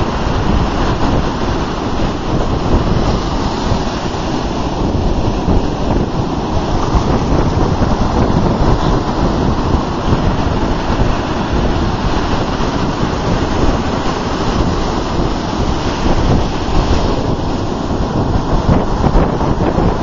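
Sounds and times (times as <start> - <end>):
ocean surf breaking: 0.0 - 20.0
wind buffeting microphone: 0.0 - 20.0.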